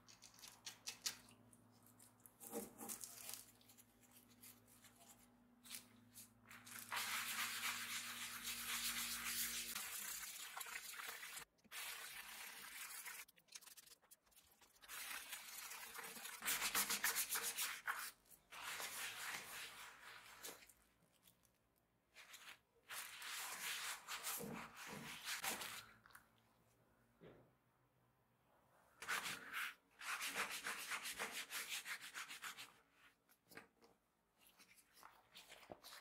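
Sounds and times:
brush scrubbing wet leather: 6.5 - 20.7.

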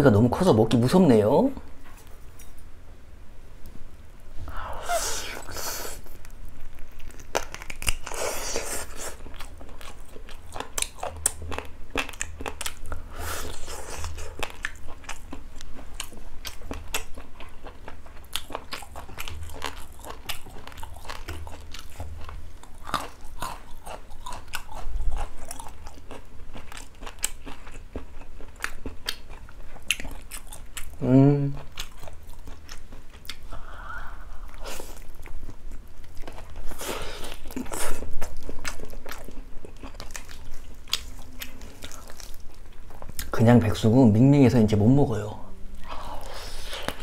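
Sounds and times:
close chewing with mouth smacks: 5.4 - 33.5, 34.4 - 43.4.

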